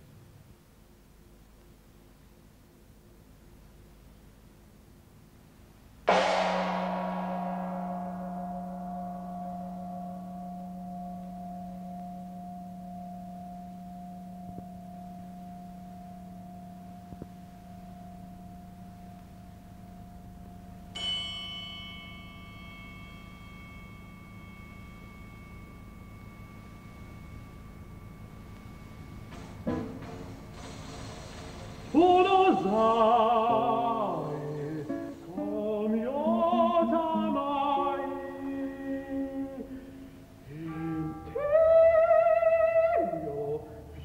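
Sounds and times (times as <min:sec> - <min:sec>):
bell-like stroke ringing: 0:06.1 - 0:29.7
gong stroke ringing: 0:06.1 - 0:30.5.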